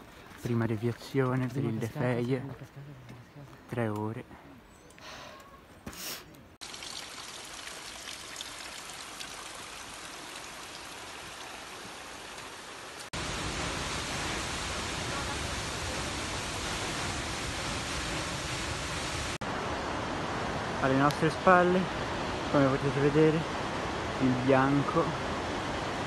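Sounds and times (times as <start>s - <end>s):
running water rushing: 6.6s - 26.0s
waterfall rushing: 9.7s - 26.0s.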